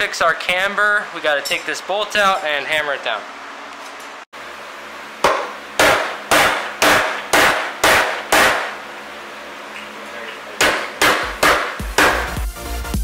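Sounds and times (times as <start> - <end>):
hammer striking metal: 5.2 - 8.8, 10.6 - 12.4.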